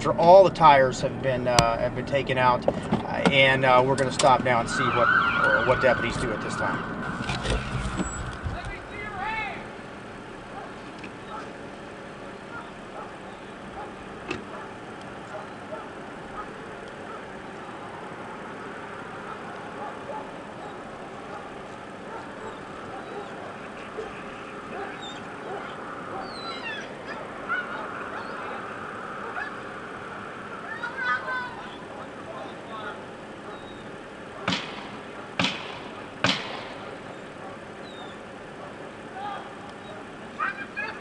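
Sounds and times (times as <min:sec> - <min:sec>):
vehicles idling: 0:00.0 - 0:41.0
sharp bangs with ringing tail: 0:34.4 - 0:37.1.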